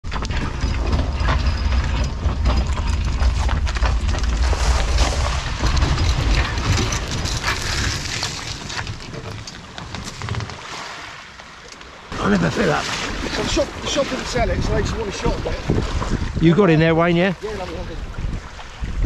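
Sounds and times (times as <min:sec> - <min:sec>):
wind buffeting microphone: 0:12.1 - 0:19.0.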